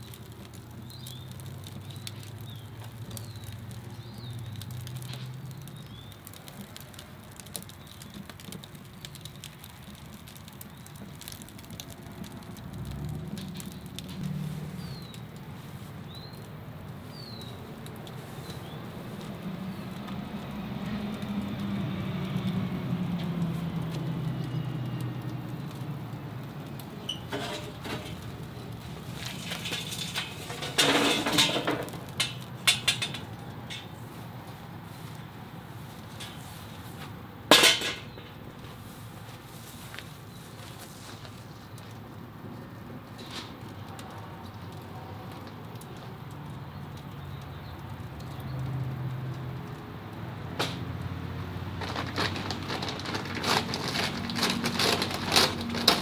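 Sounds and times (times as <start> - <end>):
smoker fire crackling and popping: 0.0 - 56.0.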